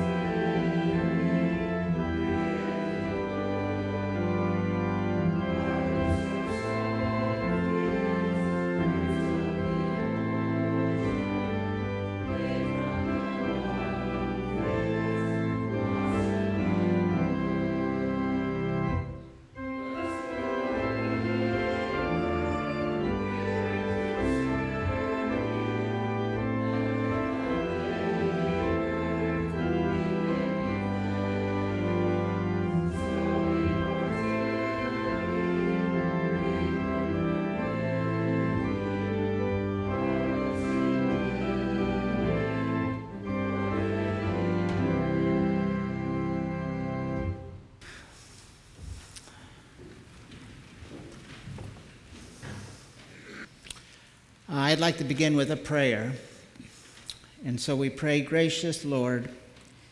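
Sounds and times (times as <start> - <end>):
organ playing held chords: 0.0 - 47.8.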